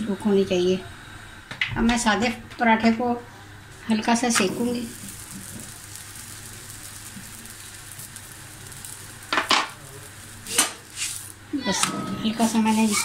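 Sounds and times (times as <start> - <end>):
dough sizzling on griddle: 2.8 - 13.0.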